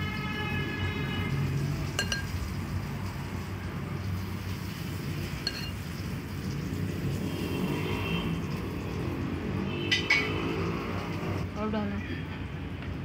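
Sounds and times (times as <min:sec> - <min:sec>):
clinks against ceramic plate: 0:02.0 - 0:02.4, 0:05.4 - 0:05.8.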